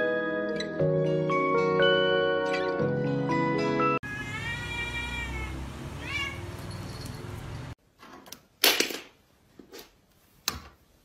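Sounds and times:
cat meowing: 4.0s - 6.7s.

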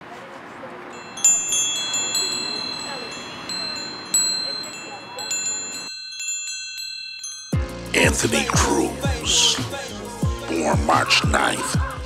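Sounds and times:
metallic chimes ringing: 0.9s - 8.6s.

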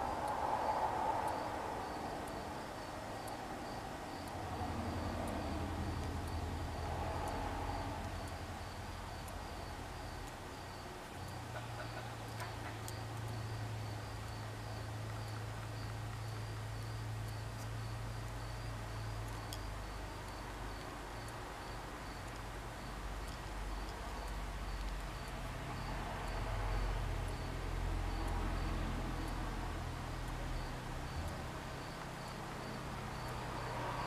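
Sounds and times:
cricket chirping: 0.0s - 34.0s
faint clicks: 4.2s - 26.4s.

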